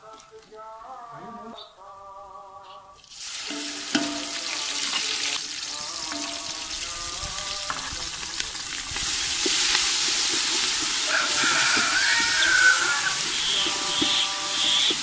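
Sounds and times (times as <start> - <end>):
food sizzling in hot oil: 3.0 - 15.0
wooden spoon stirring: 7.3 - 15.0.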